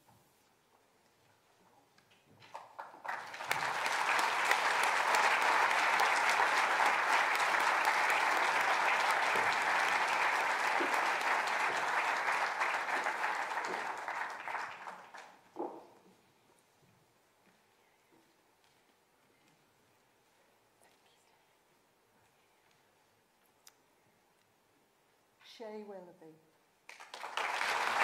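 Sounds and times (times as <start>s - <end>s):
audience applauding: 2.4s - 15.5s, 26.9s - 28.0s.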